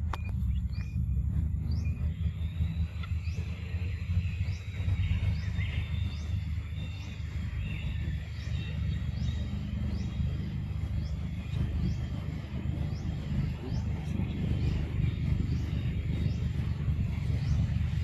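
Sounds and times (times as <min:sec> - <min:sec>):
low rumble: 0:00.0 - 0:18.0.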